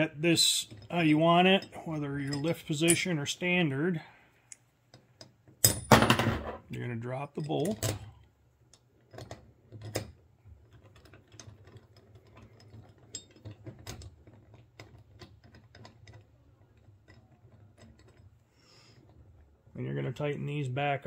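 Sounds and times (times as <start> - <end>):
small metal parts clicking: 7.4 - 19.4.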